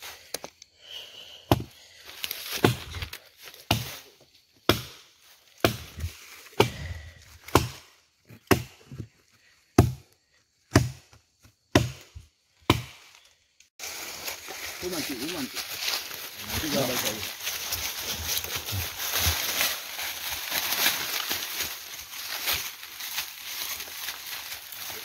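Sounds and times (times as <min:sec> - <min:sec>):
blade chopping wood: 0:02.5 - 0:04.0, 0:04.6 - 0:05.0, 0:05.6 - 0:09.1, 0:09.8 - 0:10.1, 0:10.7 - 0:13.1.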